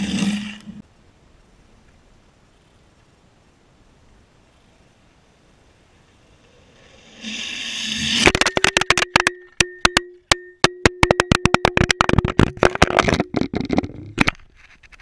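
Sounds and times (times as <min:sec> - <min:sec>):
longboard wheels rolling on concrete: 0:00.0 - 0:00.9
faint steady ringing tone: 0:00.8 - 0:07.2, 0:08.2 - 0:14.0.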